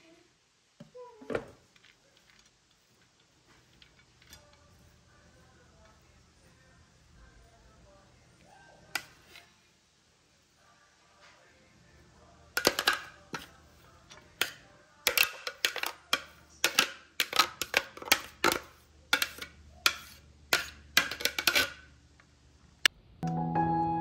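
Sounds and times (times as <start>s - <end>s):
plastic spatula scraping plastic bowl: 8.8s - 9.6s, 12.6s - 21.8s.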